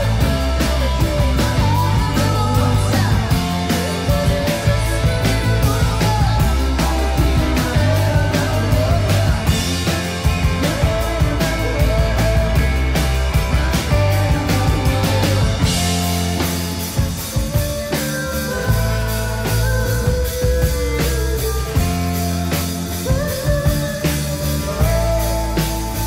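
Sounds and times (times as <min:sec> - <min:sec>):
bass guitar: 0:00.0 - 0:26.0
drum kit beat: 0:00.0 - 0:26.0
electric guitar: 0:00.0 - 0:26.0.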